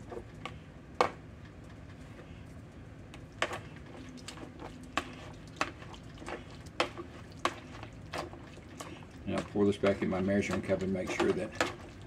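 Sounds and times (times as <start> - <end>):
potato masher clacking on plastic bowl: 10.2 - 11.8.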